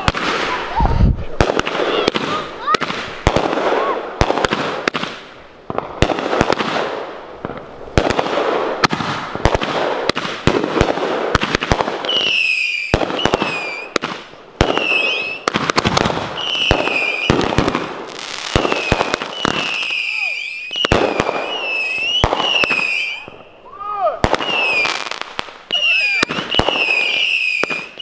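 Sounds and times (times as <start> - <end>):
firework bangs: 0.0 - 28.0
firework crackling: 0.0 - 28.0
falling firework whistles: 12.0 - 14.0, 14.6 - 15.6, 16.3 - 17.7, 18.5 - 28.0.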